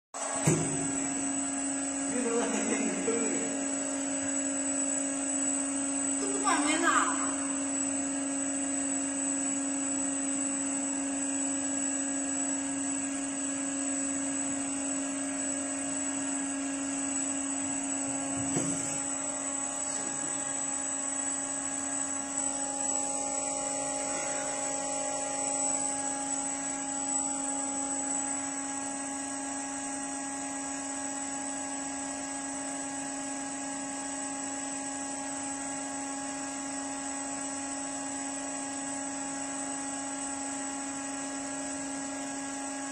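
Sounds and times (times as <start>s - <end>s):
machine hum: 0.2s - 10.4s, 11.1s - 32.8s
brief knock: 0.4s - 0.8s.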